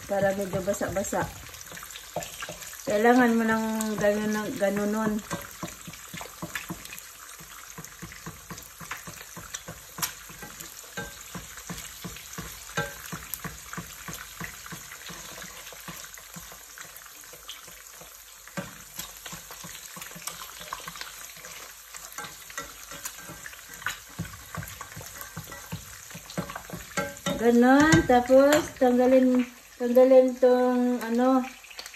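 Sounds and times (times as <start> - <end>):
spatula tapping in pan: 0.0 - 28.9
eggs sizzling in oil: 0.0 - 31.9.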